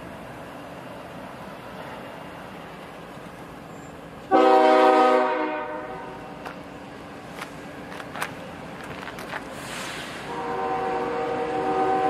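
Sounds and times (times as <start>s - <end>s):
locomotive air horn blast: 4.3s - 6.2s, 9.6s - 12.0s.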